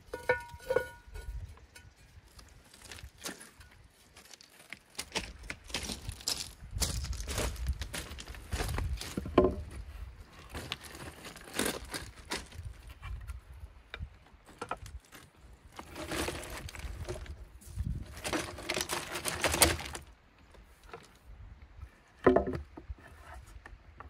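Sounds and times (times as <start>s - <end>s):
pebbles crunching: 2.2s - 12.8s, 14.4s - 20.1s
wood knocking: 9.2s - 9.7s, 22.2s - 22.9s.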